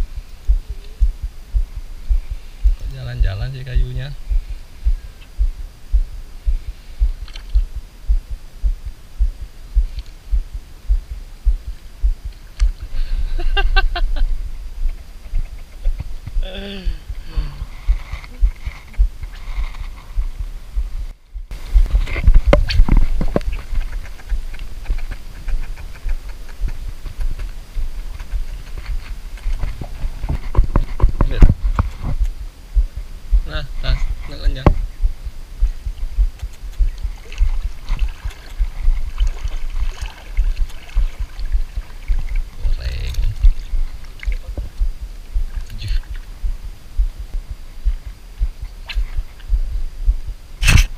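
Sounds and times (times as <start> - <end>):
dull low handling thumps: 0.0 - 12.9, 13.6 - 50.9
faint uneven ticking: 0.0 - 29.6, 40.4 - 50.4
faint clicks: 7.0 - 8.3, 9.8 - 10.4, 11.5 - 12.9, 35.7 - 37.5.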